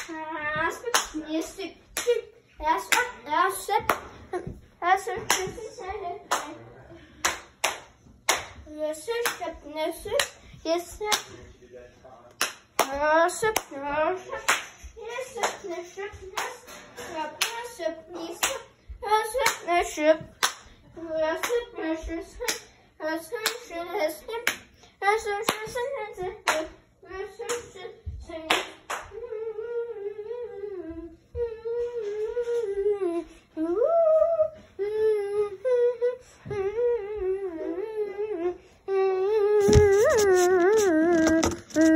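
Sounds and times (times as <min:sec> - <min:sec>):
sharp hand claps: 0:07.2 - 0:08.6, 0:12.3 - 0:13.0, 0:14.5 - 0:14.8, 0:20.4 - 0:20.6, 0:28.5 - 0:29.1
person humming a tune: 0:29.2 - 0:41.9.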